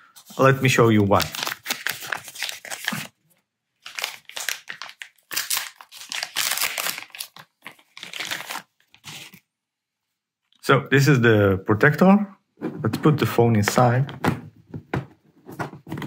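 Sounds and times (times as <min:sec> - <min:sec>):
plastic packaging crinkling: 0:00.2 - 0:03.2, 0:03.8 - 0:09.4.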